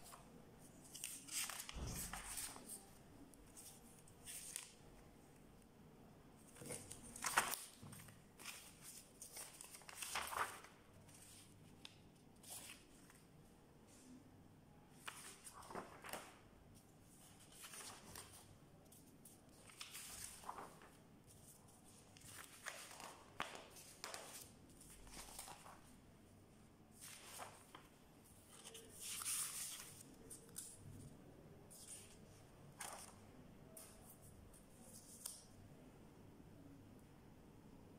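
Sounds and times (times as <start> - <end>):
paper rustling and flicking: 0.0 - 2.8, 6.4 - 13.2, 15.0 - 16.5, 17.2 - 25.9, 27.0 - 30.8.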